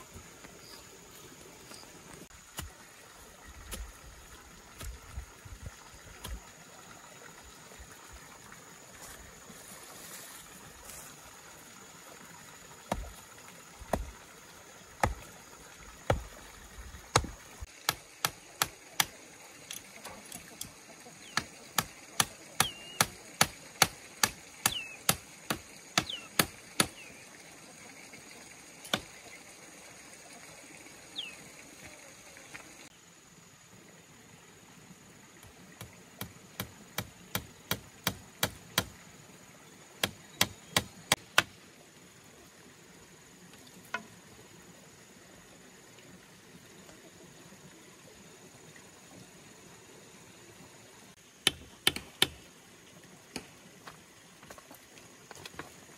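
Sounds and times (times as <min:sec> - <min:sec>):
hand tool striking wood: 0:12.9 - 0:13.1, 0:15.0 - 0:15.2, 0:17.1 - 0:19.1, 0:21.3 - 0:27.0, 0:35.8 - 0:39.0, 0:40.0 - 0:41.5, 0:51.4 - 0:52.4
bird chirps: 0:22.6 - 0:23.1, 0:24.6 - 0:25.1, 0:26.0 - 0:27.2, 0:31.2 - 0:31.4.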